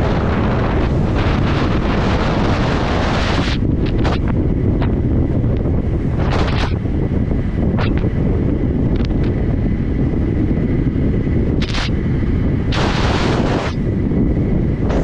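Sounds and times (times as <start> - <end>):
wind buffeting microphone: 0.0 - 15.0
bursts of hiss: 12.7 - 13.8.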